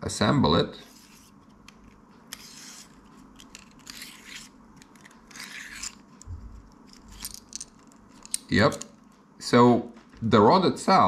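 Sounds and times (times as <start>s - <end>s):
metal rod sections scraping: 2.3s - 6.1s
metal rod sections clicking: 6.9s - 9.0s.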